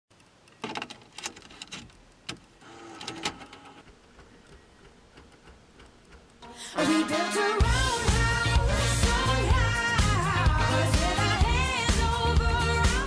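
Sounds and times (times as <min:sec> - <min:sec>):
handling clicks and knocks: 0:00.1 - 0:02.5, 0:03.8 - 0:06.4
pop song with singing: 0:06.4 - 0:13.0.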